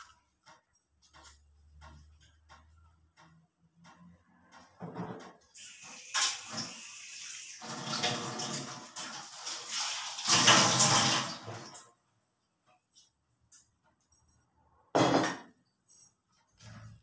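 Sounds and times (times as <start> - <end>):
water running and splashing: 5.6 - 11.6.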